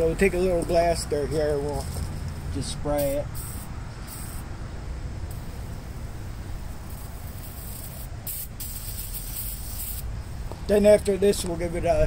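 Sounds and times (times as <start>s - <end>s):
aerosol can spraying: 3.0s - 4.4s, 6.9s - 10.1s.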